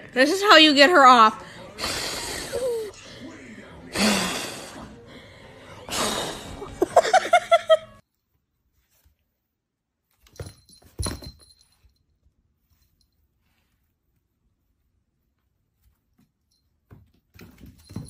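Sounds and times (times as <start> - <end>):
person laughing: 6.6 - 8.0.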